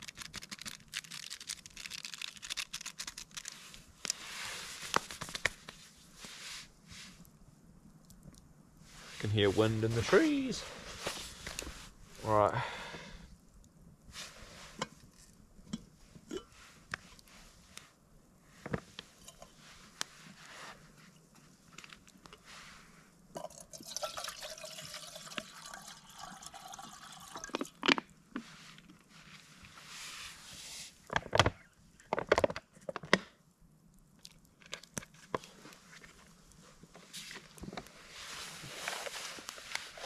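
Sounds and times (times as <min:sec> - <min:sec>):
water pouring from bottle: 0:23.4 - 0:27.8.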